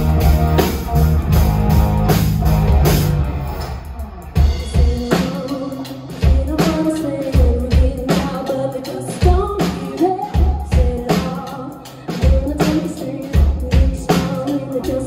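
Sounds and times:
pop-rock band playing: 0.0s - 15.0s
woman singing: 4.5s - 15.0s.

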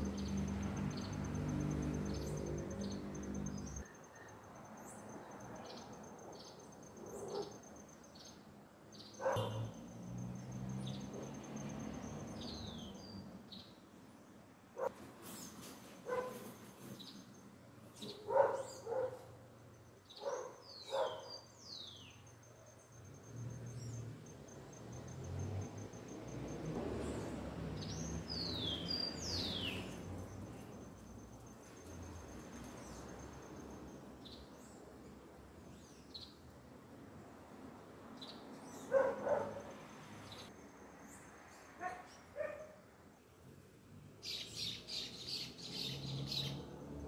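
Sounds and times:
small birds chirping: 0.0s - 13.9s, 14.8s - 25.9s, 27.0s - 36.6s, 44.2s - 47.0s
dog barking: 7.1s - 7.6s, 9.2s - 9.8s, 14.8s - 15.0s, 16.0s - 16.5s, 18.1s - 19.4s, 20.2s - 21.4s, 38.9s - 39.8s, 41.8s - 42.8s.

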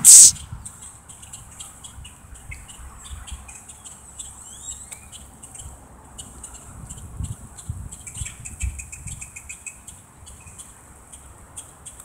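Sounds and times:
rising bird whistles: 0.0s - 0.4s.

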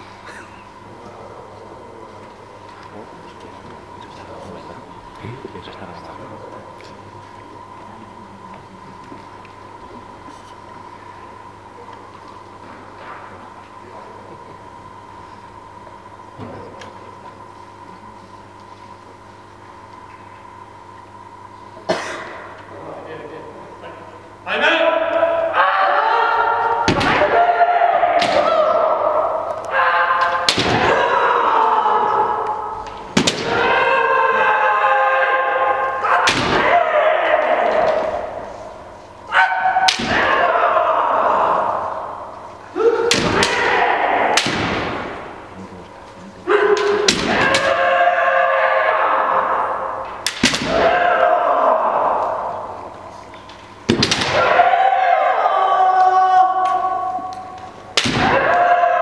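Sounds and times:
people shouting in a hall: 20.5s - 59.0s
bamboo swords striking: 50.2s - 50.9s, 58.0s - 58.5s.

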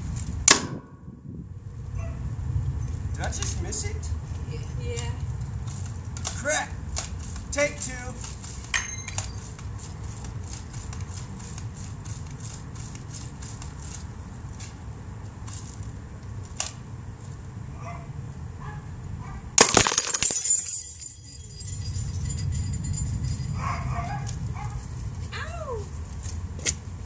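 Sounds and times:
glass tinkling: 8.7s - 9.4s, 19.8s - 23.9s
light bulb shattering: 19.6s - 21.2s.

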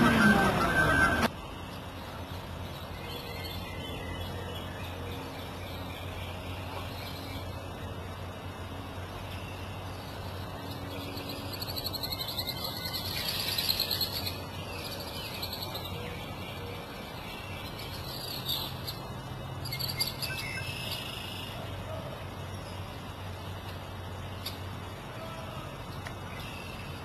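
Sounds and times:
steady low hum: 0.0s - 27.0s
birds chirping and singing: 2.2s - 8.0s, 9.3s - 21.6s.

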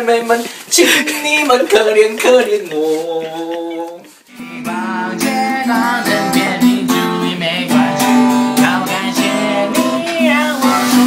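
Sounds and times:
man singing: 0.0s - 11.0s
guitar strumming: 4.3s - 11.0s.

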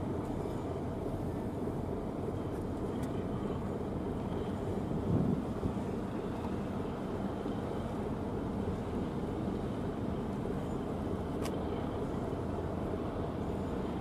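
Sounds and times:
distant ship engines droning: 0.0s - 14.0s
faint click: 11.4s - 11.6s.

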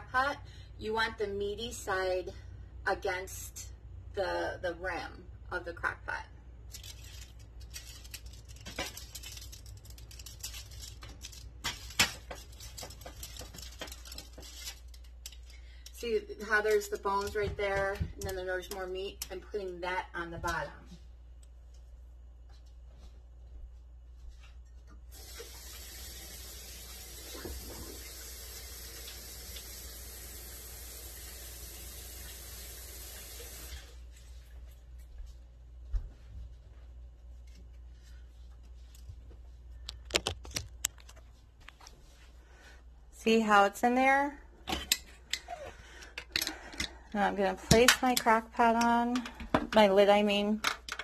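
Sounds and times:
aluminium foil crinkling: 6.6s - 17.5s
sharp foil crackles: 6.7s - 15.9s
faucet running into a sink: 25.1s - 33.9s.

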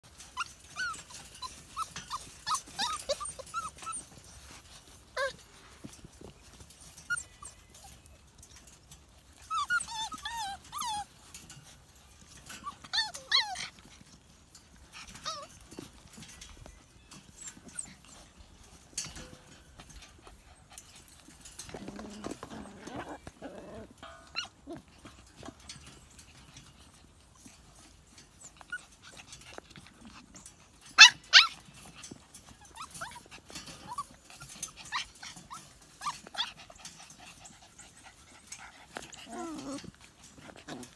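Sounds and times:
puppies whining and yipping: 0.0s - 40.9s.

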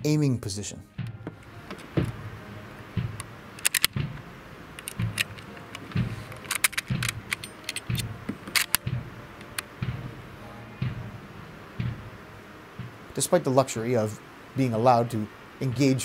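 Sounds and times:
cartridges clattering into magazine: 3.6s - 4.0s, 4.8s - 8.9s
rifle bolt clicking: 3.6s - 4.0s, 4.8s - 9.7s.

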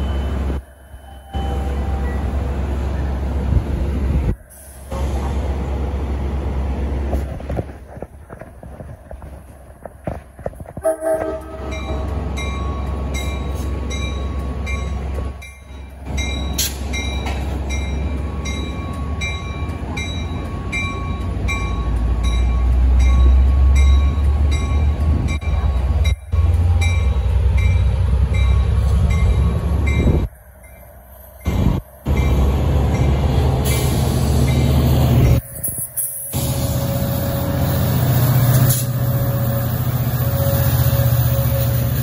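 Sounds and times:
locomotive rumble: 0.0s - 42.0s
train horn: 10.8s - 12.1s, 38.7s - 42.0s.

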